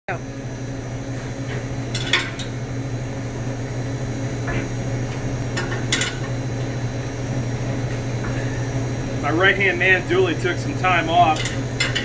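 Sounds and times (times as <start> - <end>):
low mechanical hum: 0.1 - 12.0.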